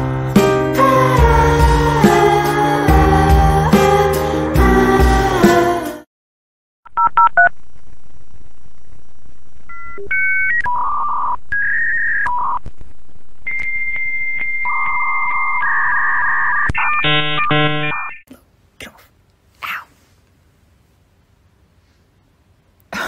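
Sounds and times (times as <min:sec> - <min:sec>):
electronic beep tones: 0:13.5 - 0:18.2.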